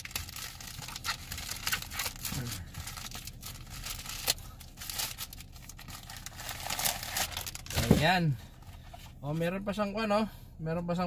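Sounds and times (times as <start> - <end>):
plastic wrapping tearing: 0.0 - 8.0.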